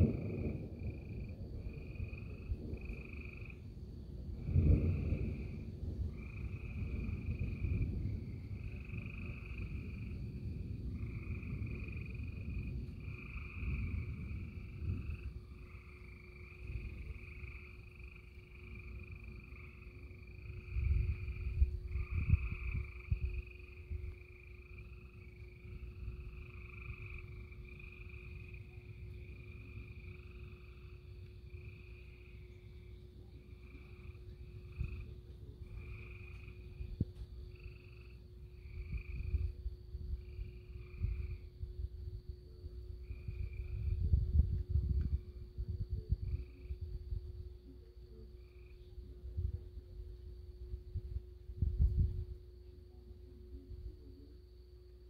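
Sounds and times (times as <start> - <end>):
frogs calling: 2.0 - 3.6, 5.3 - 7.8, 11.0 - 36.9.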